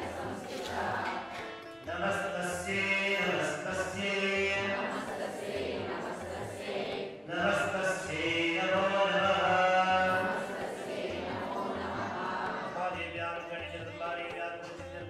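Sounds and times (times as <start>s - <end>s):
voices chanting: 0.0s - 1.3s, 3.1s - 12.9s.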